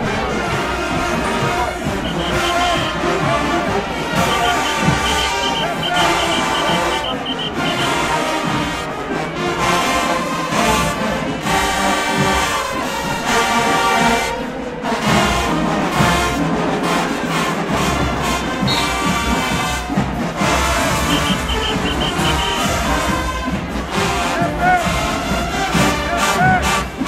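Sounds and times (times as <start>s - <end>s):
marching band brass playing: 0.0s - 27.0s.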